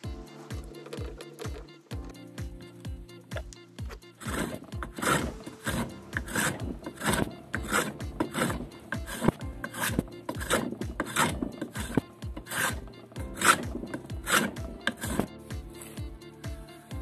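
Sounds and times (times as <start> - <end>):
background music: 0.0 - 17.0
chisel scraping wood: 4.2 - 16.0.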